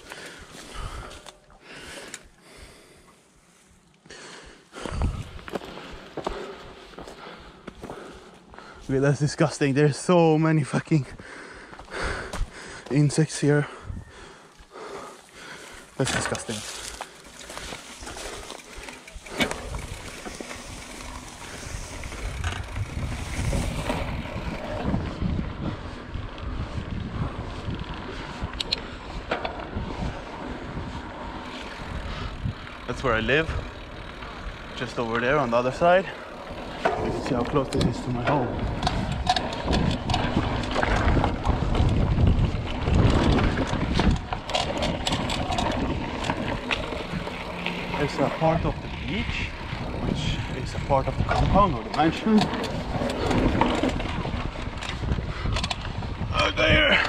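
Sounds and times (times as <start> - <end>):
bike rolling over grass and dirt: 0.0 - 2.4, 4.7 - 11.1, 11.7 - 57.0
wind buffeting microphone: 4.8 - 6.8, 13.6 - 14.5, 16.7 - 34.8, 36.3 - 57.0
tyres crunching on gravel: 15.5 - 24.8, 34.2 - 55.0.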